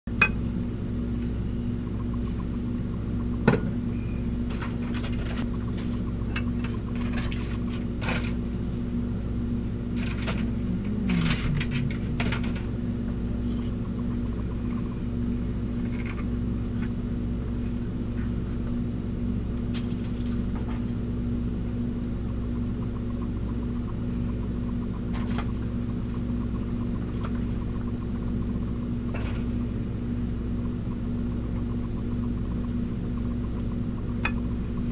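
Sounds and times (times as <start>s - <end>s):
low machine hum: 0.1s - 34.9s.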